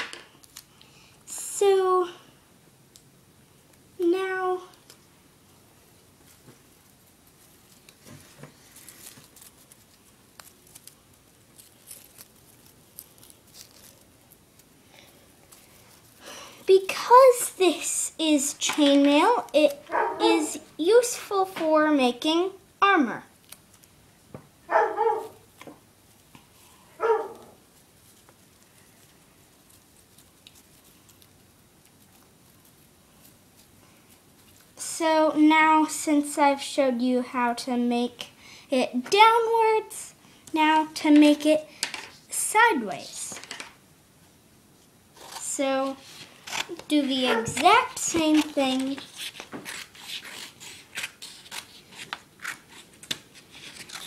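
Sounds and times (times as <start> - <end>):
paper and tape rustling: 6.0 - 22.3, 23.4 - 24.0, 25.1 - 34.9, 45.1 - 54.0
dog barking: 19.9 - 20.2, 24.7 - 25.4, 27.0 - 27.6, 47.3 - 47.6.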